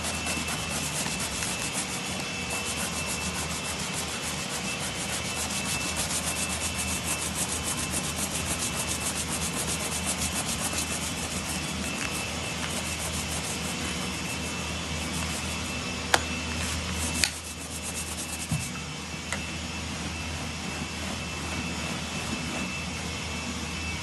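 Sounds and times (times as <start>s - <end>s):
brush scrubbing leather: 0.0s - 18.7s
machine drone with high whine: 0.0s - 24.0s.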